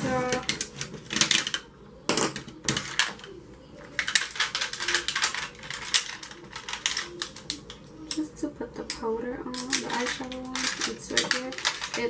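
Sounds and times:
makeup brushes and cases clattering: 9.5 - 12.0.

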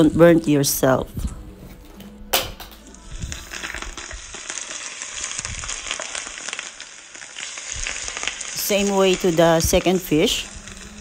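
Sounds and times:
hot oil sizzling and crackling: 2.4 - 11.0.

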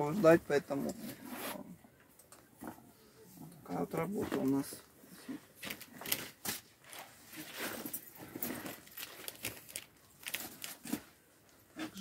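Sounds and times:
leather handbags rustling: 5.3 - 11.2.

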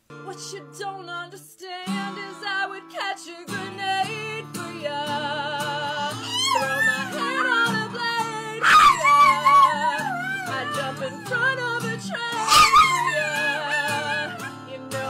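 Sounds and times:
acoustic guitar strumming: 0.0 - 15.0
woman singing: 0.1 - 15.0
small dog howling: 5.9 - 14.7.

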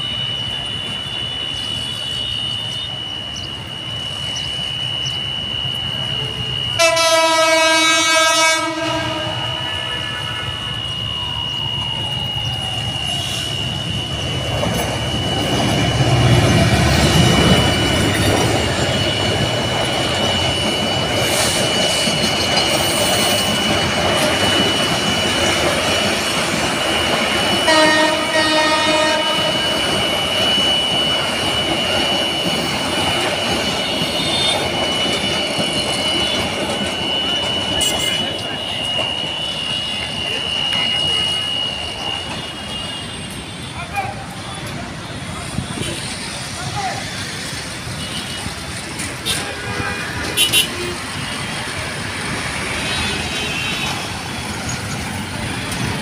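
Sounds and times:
high whine: 0.0 - 50.2
train horn blast: 6.5 - 10.6, 27.5 - 30.1, 33.8 - 34.8, 37.6 - 44.7, 47.9 - 51.0.

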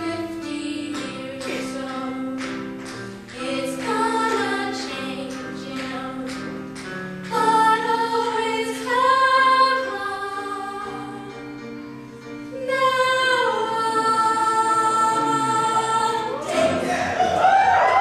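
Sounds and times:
two women singing a duet: 0.0 - 6.6, 7.2 - 11.6, 12.5 - 16.7
instrumental accompaniment: 0.0 - 18.0.

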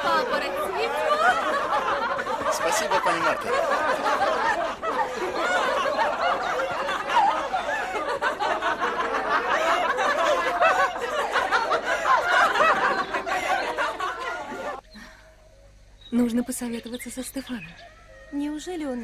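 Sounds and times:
young woman laughing: 0.0 - 15.2
group laughing and chattering: 0.0 - 15.4.

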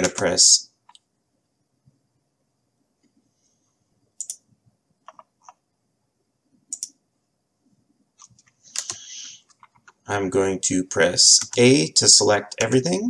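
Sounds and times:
mouse and keyboard clicks: 4.2 - 4.4, 6.7 - 7.0, 8.2 - 10.0.

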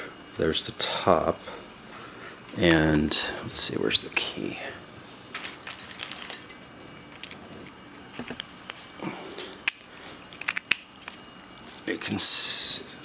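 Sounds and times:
padlock and key clicking: 9.6 - 11.3.

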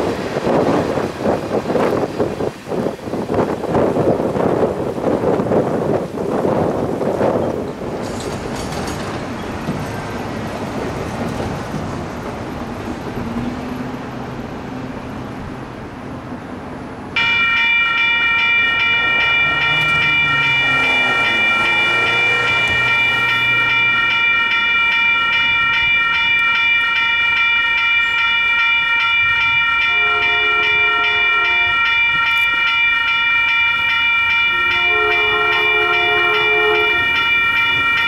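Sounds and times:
wind buffeting microphone: 0.0 - 30.1
railroad crossing bell ringing: 17.2 - 38.0.

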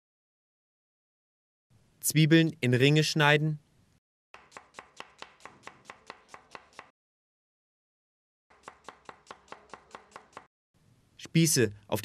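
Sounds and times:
knife chopping on wooden board: 4.4 - 6.9, 8.5 - 10.5.

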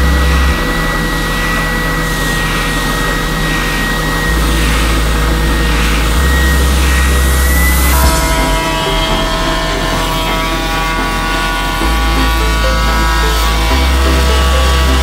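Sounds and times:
spindle sander whining: 0.0 - 15.0.

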